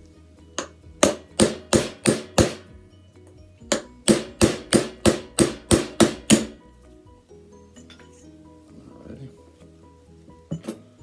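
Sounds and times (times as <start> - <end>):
hammer striking metal punch: 0.6 - 2.8, 3.6 - 6.6.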